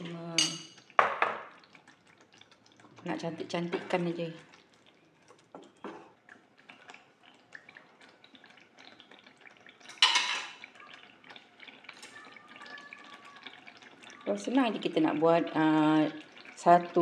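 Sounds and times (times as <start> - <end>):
sauce popping while cooking: 0.0 - 17.0.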